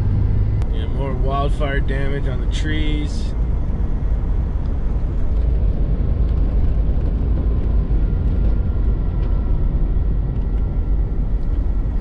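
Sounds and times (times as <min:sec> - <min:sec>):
van engine and road rumble: 0:00.0 - 0:12.0.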